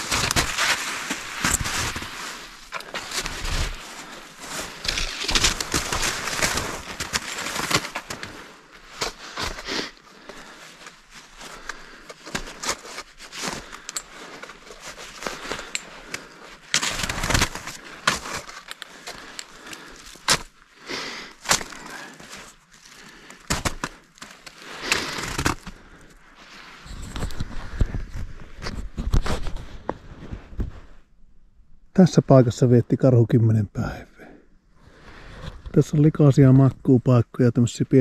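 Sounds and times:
footsteps through undergrowth: 0.0s - 11.6s
twigs snapping: 4.4s - 8.4s.

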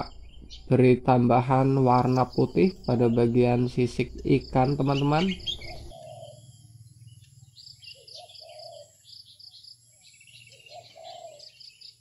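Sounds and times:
insects and birds chirping: 0.0s - 12.0s
lower longer bird calls: 0.0s - 12.0s.

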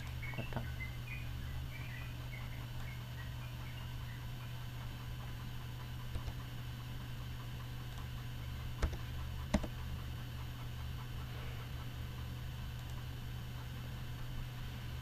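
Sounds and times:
low hum and hiss: 0.0s - 15.0s
mouse and keyboard clicks: 6.1s - 6.5s, 8.8s - 9.8s.

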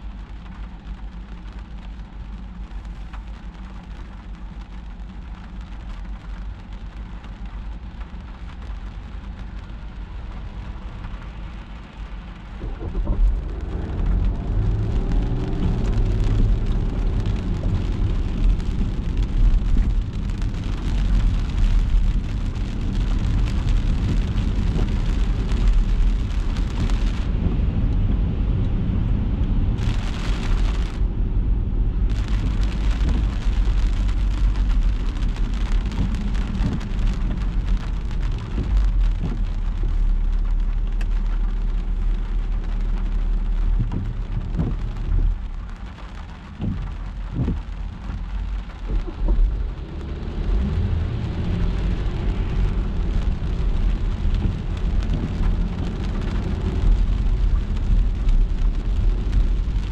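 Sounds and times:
rain and tyres hissing: 0.0s - 59.9s
road rumble: 0.0s - 59.9s.

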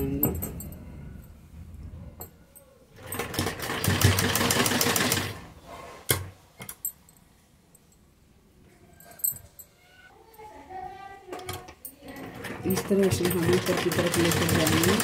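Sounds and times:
sewing machine stitching: 3.0s - 5.5s, 12.2s - 15.0s.

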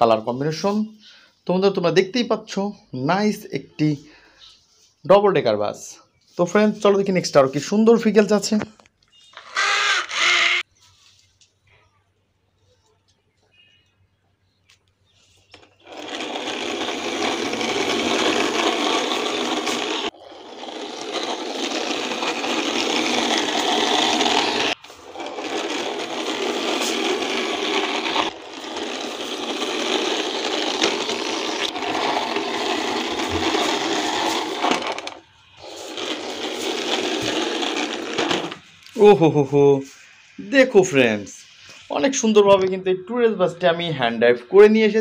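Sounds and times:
toy bus wheels rolling on concrete: 5.7s - 11.6s, 14.7s - 41.3s.

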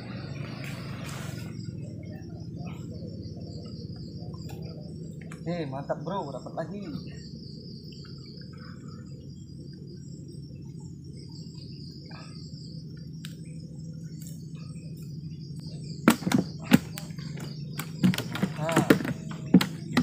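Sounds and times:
insect chorus: 0.0s - 20.0s
low steady hum: 0.0s - 20.0s
knocks in wooden boat: 16.1s - 17.0s, 17.8s - 20.0s.

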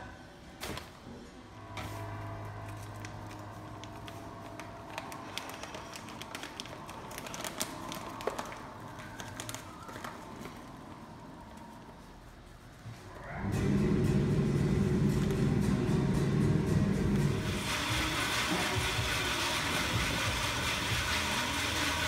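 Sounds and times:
steady low hum: 0.0s - 22.0s
paper bag crinkling: 2.7s - 11.9s.

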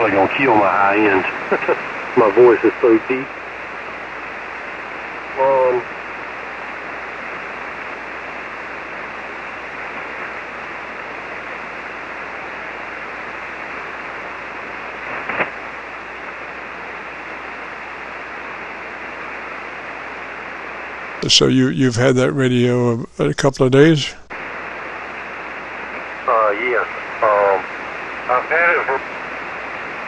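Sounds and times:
short radio crackle: 0.0s - 2.9s, 12.8s - 18.4s, 24.4s - 30.0s
radio static hiss: 0.0s - 30.0s.

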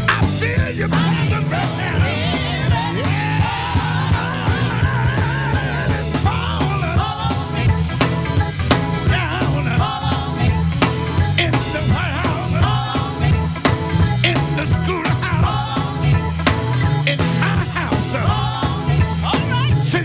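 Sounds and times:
live soul band playing: 0.0s - 20.0s
man singing lead vocals: 0.0s - 20.0s
women singing backing vocals: 0.8s - 7.9s, 9.0s - 13.6s, 17.4s - 19.4s.

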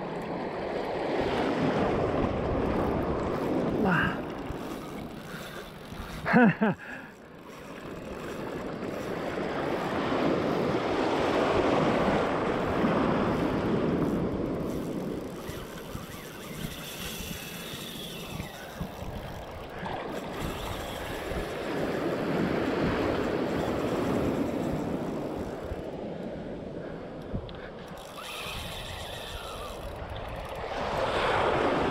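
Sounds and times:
wind on microphone: 0.0s - 6.4s, 7.8s - 31.9s
surf washing in: 0.0s - 7.3s, 8.3s - 31.9s
person exclaiming: 3.8s - 4.2s.

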